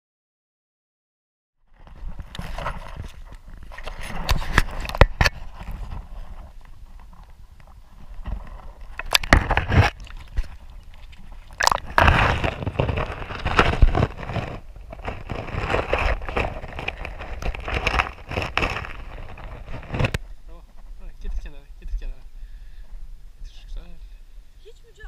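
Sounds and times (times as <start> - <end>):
water splashing and sloshing: 1.7 - 20.4
water rushing against camera: 1.8 - 20.4.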